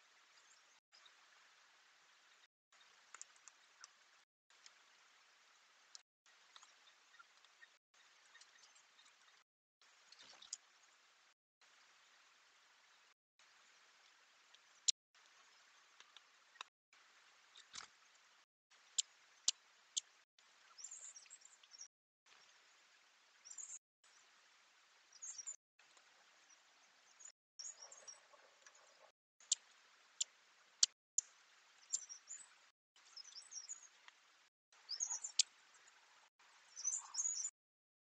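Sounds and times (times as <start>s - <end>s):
high quick bird chirps: 34.8s - 35.5s, 36.8s - 37.5s.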